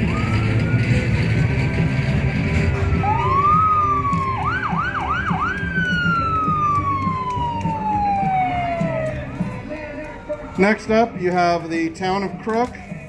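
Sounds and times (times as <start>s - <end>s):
siren sweeping: 0.0s - 9.6s
slow-moving vehicles rumble: 0.0s - 13.0s.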